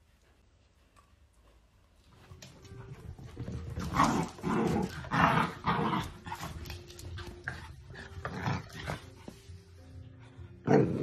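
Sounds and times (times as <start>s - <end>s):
dogs growling and barking: 3.7s - 9.2s, 10.6s - 11.0s.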